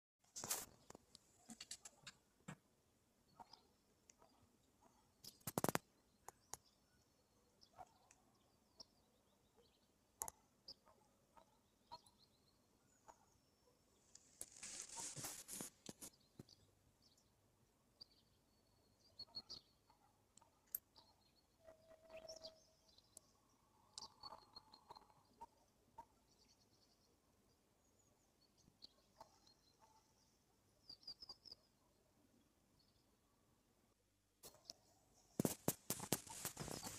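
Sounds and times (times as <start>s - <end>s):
faint clicks and taps: 35.4s - 36.9s.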